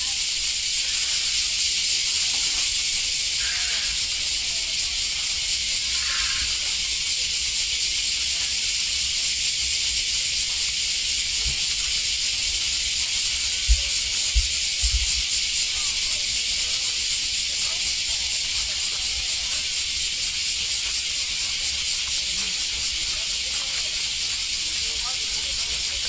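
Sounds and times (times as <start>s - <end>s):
faint voices: 0.0s - 26.0s
high-pitched hiss: 0.0s - 26.0s
low thumps: 13.6s - 15.4s.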